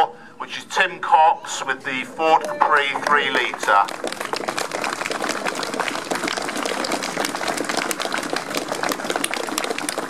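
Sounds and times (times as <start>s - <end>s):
crowd applauding: 2.4s - 10.0s.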